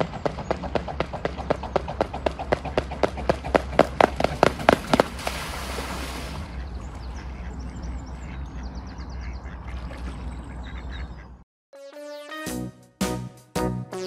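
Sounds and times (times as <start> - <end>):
swan feet and wings slapping water: 0.0 - 7.6, 9.4 - 11.0.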